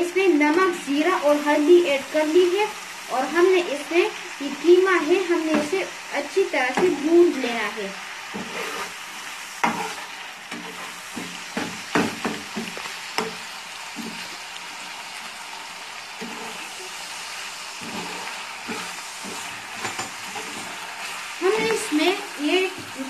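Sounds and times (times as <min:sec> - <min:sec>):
meat sizzling in oil: 0:00.0 - 0:23.0
metal spatula scraping pan: 0:08.3 - 0:13.4, 0:16.2 - 0:17.2, 0:17.8 - 0:23.0.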